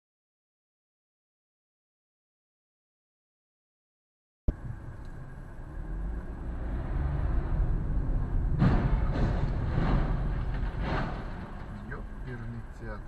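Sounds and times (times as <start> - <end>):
car road and engine rumble: 4.5 - 13.0.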